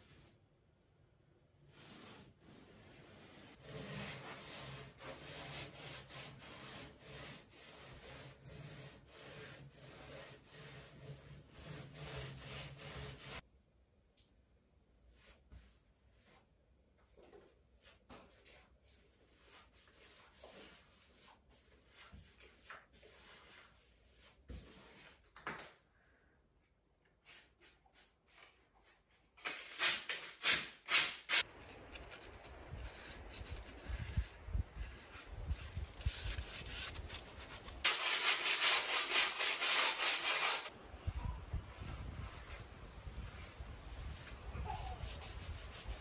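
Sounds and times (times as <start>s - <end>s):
sponge scrubbing a window frame: 0.0s - 0.4s, 1.6s - 13.4s, 17.7s - 25.2s, 31.4s - 46.0s
paintbrush strokes on wood: 1.7s - 13.4s, 40.3s - 46.0s.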